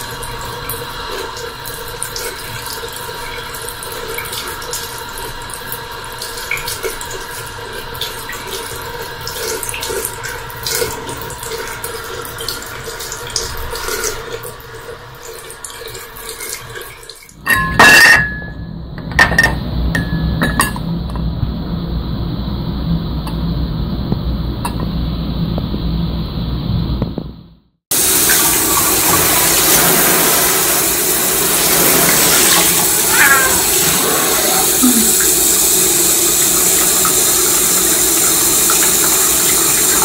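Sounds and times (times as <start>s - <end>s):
steady background hum: 17.4s - 27.3s.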